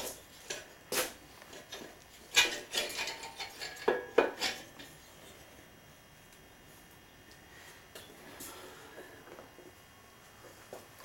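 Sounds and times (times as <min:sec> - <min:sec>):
metal clinks and scraping: 0:01.6 - 0:05.0.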